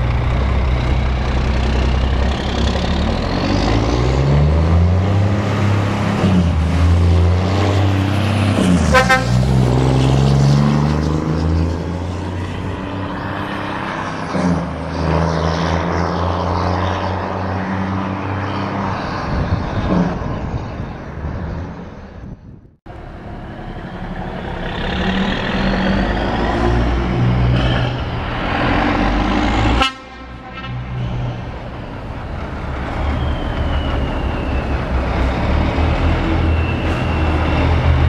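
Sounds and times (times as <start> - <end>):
truck engine accelerating: 0.0 - 38.0
truck horn toot: 8.8 - 9.5, 29.7 - 31.4.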